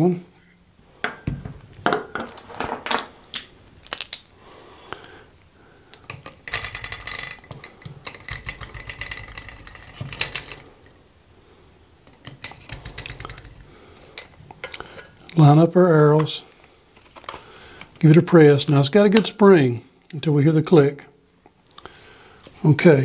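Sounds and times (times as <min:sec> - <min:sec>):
batteries and metal parts clicking: 0:03.3 - 0:04.3, 0:05.9 - 0:10.7, 0:12.2 - 0:15.2
rattling clicks of batteries sliding: 0:14.1 - 0:15.4.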